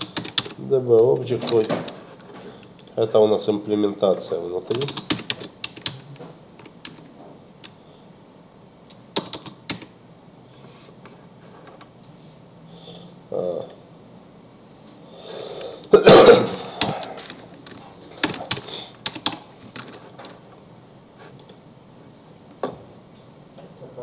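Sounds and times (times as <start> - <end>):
keyboard and mouse clicks: 8.9 - 9.9.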